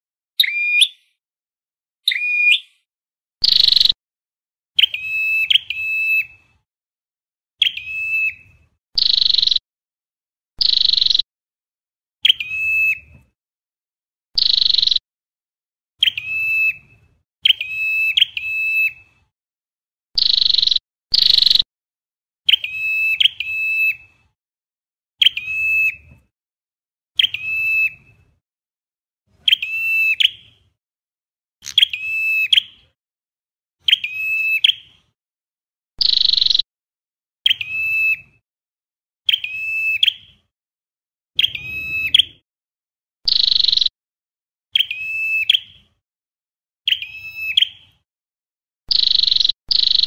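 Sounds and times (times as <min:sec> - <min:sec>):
bird calling sharp notes: 0:00.4 - 0:01.2, 0:02.0 - 0:02.8, 0:03.4 - 0:04.0, 0:09.0 - 0:09.6, 0:20.2 - 0:21.6, 0:41.4 - 0:42.4.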